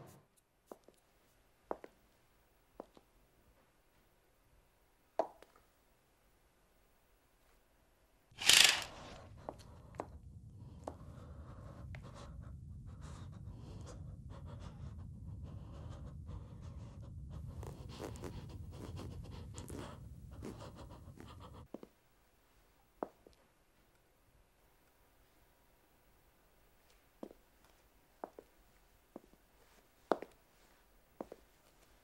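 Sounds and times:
rustling and scratching: 8.4 - 9.5, 17.4 - 21.7
low steady rumble: 8.6 - 21.7.

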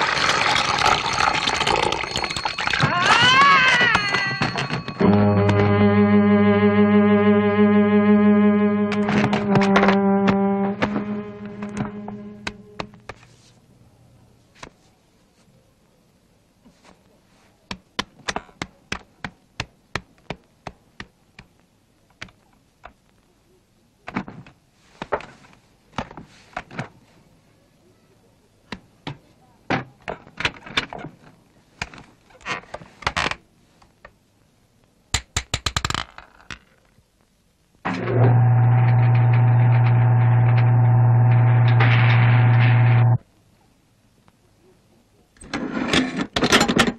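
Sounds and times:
electric buzz with deep hum: 37.9 - 43.2.

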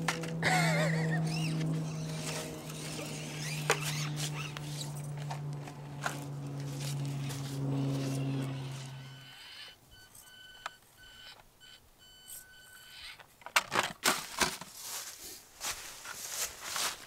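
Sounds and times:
small electric motor whining: 0.0 - 13.2
short electronic beeps: 9.0 - 13.2
plastic toy truck clattering on rocks: 13.2 - 14.8.

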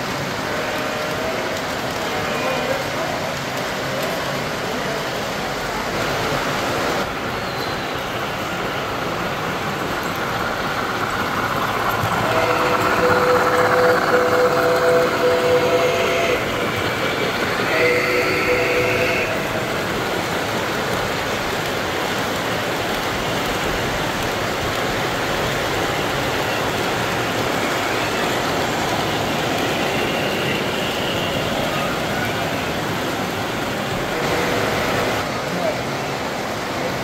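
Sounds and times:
model trains rolling on track: 0.0 - 37.0
model locomotive chime whistle: 12.0 - 19.6.

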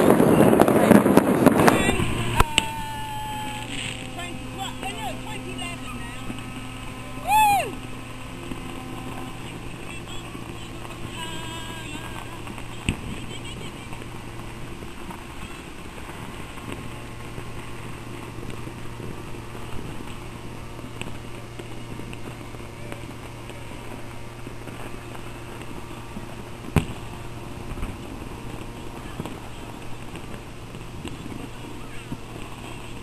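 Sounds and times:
low hum: 0.0 - 33.0
street traffic noise: 0.7 - 33.0
distant firecracker pops: 24.4 - 32.8
loud firecracker bang: 26.7 - 31.8.

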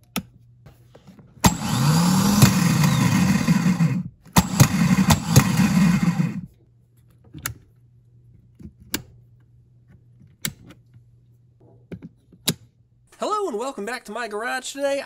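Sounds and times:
starter motor whirring: 1.4 - 6.5.

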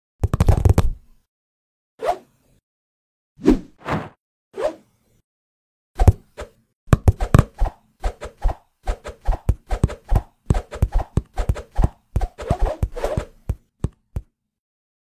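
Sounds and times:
cartoon thumps and taps: 6.9 - 7.5, 9.5 - 14.3.

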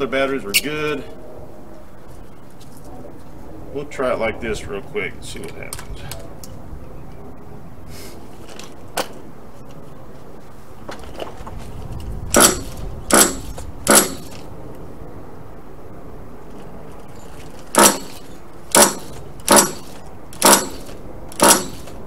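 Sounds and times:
pull-starter ratcheting rasp: 12.3 - 14.4, 17.4 - 22.0.

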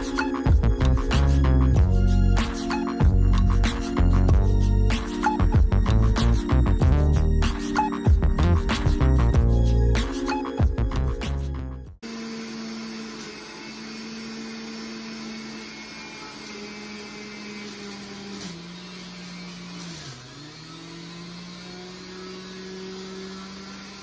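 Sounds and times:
juicer motor running: 0.0 - 8.9, 12.0 - 24.0
music: 0.0 - 12.0.

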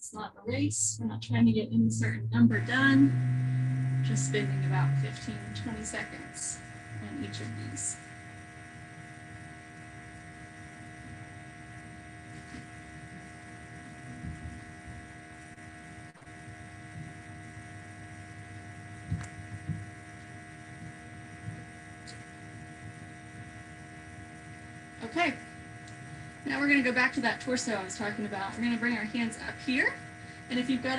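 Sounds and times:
steady electrical hum: 0.0 - 30.9.

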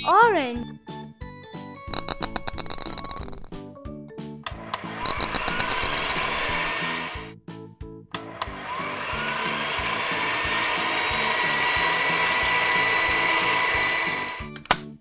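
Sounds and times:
clicks: 4.4 - 6.1
cartoon motor whirring: 4.6 - 7.3, 8.3 - 14.6.

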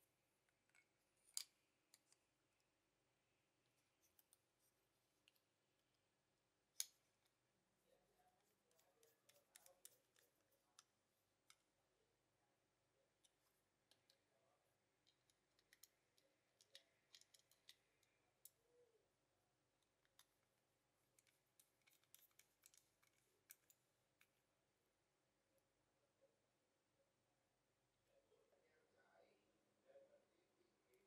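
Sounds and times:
toy car clicks and taps: 16.6 - 17.9.

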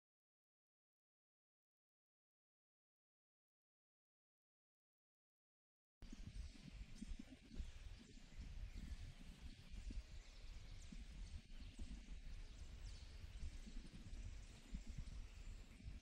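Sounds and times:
bird chirps: 6.1 - 16.0.

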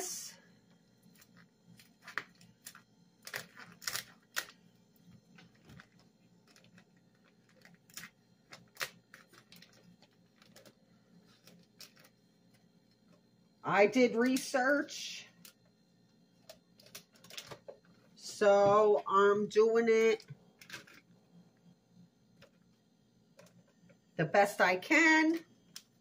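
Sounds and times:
plastic wrapping crinkling: 1.1 - 4.6, 5.3 - 13.2, 16.5 - 18.2.

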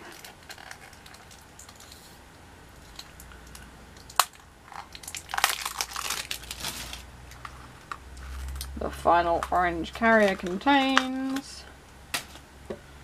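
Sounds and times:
plastic packaging crinkling: 0.0 - 2.2, 2.8 - 7.6.

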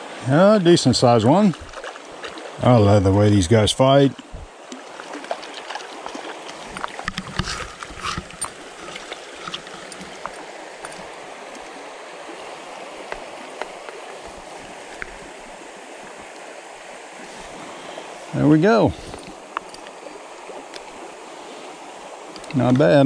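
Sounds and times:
river flowing over riffle: 0.0 - 23.0
water splashes and knocks: 1.0 - 16.5, 22.3 - 23.0.

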